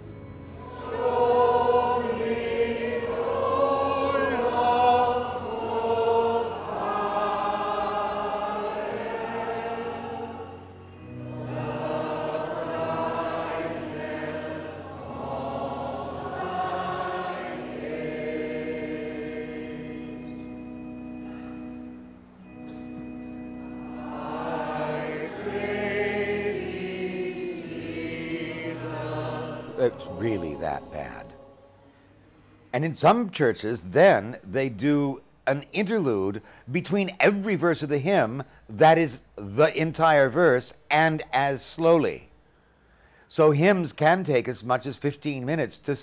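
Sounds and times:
church choir singing a hymn: 0.0 - 33.0.

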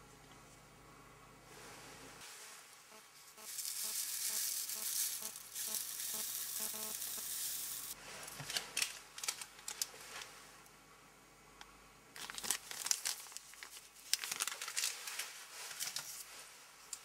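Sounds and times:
metal chips pouring into crucible: 3.5 - 8.0.

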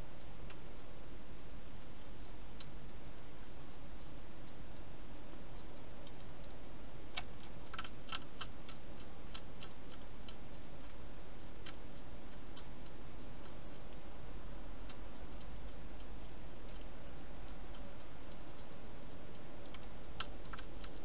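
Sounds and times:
steady hiss: 0.0 - 21.0
hedgehog crunching dry food: 7.2 - 11.0, 14.8 - 21.0.

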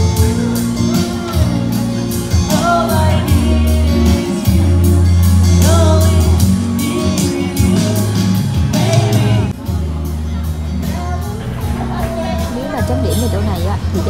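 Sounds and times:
man singing into microphone: 0.0 - 9.8
amplified backing music with bass: 0.0 - 14.0.

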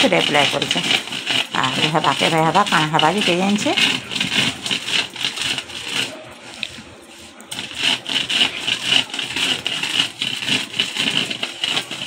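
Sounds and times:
stone roller scraping grinding stone: 0.0 - 12.0.

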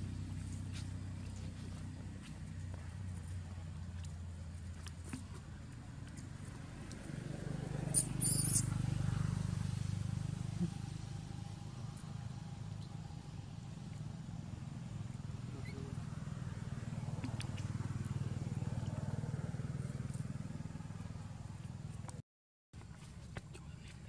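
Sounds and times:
high squeak: 7.9 - 8.7.

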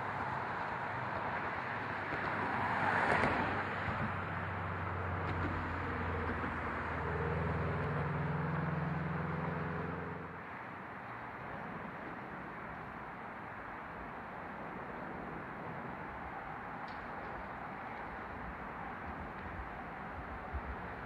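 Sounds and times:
low engine hum: 0.0 - 10.6
traffic noise: 0.0 - 21.0
vehicle passing: 1.7 - 10.5.

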